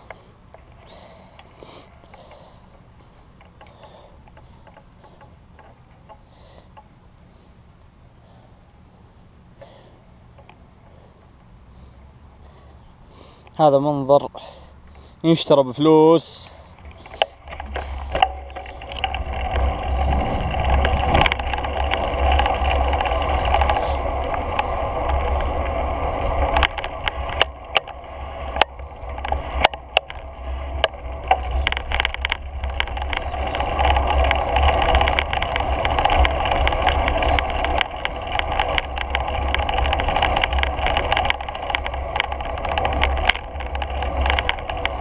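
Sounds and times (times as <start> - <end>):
rolling noise on asphalt: 0.0 - 45.0
short clicks and rattles: 16.4 - 45.0.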